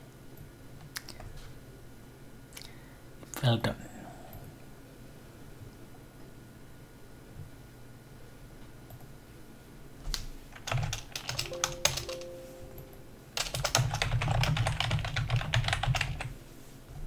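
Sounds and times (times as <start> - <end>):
typing on a computer keyboard: 10.6 - 12.2, 13.4 - 16.3.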